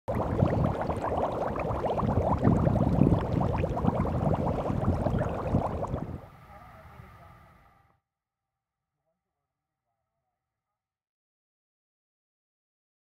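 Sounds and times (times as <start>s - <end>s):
floodwater lapping and gurgling: 0.1s - 6.3s.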